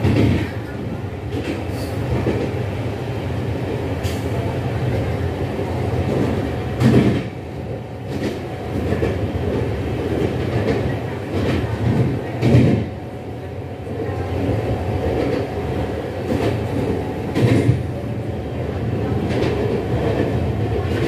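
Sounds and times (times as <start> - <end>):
train wheels rumbling on rails: 0.0 - 21.0.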